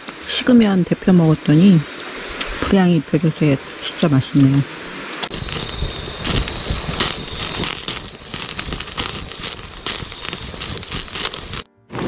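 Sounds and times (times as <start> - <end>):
meat crackling and sizzling: 5.2 - 12.0.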